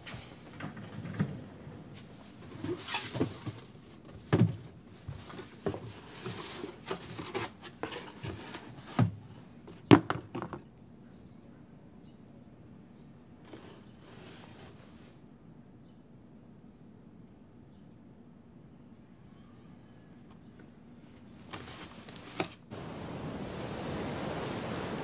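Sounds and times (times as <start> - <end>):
rustling: 1.9 - 9.5, 21.0 - 25.0.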